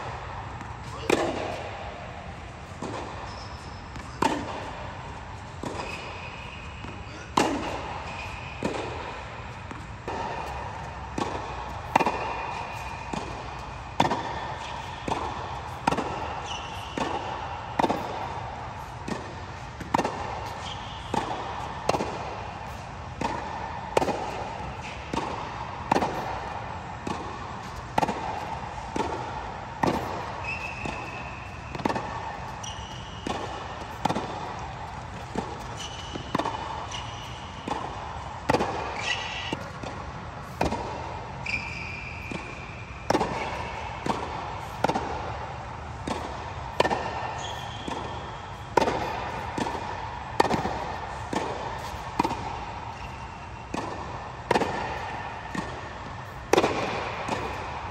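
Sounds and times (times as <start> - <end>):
ball bouncing on hard court: 0.0 - 57.8
racket hitting tennis ball: 0.0 - 57.9
shoe squeaks on court: 2.6 - 4.7, 5.7 - 8.6, 15.7 - 18.2, 20.4 - 21.8, 30.0 - 31.6, 32.3 - 37.6, 39.0 - 39.7, 41.4 - 42.8, 47.3 - 49.4, 52.9 - 53.6.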